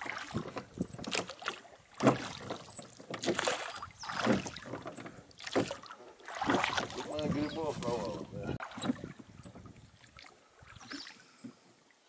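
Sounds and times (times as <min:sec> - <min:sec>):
oars splashing in water: 0:00.0 - 0:11.8.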